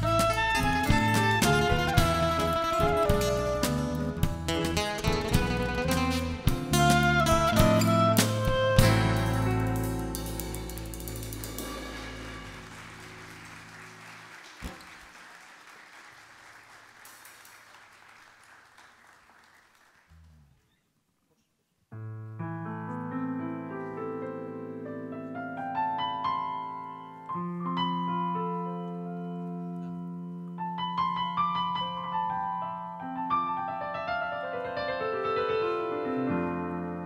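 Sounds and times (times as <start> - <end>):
keyboard playing piano chords: 0.0 - 14.8, 22.0 - 37.0
band final chord and cymbal: 8.8 - 13.8.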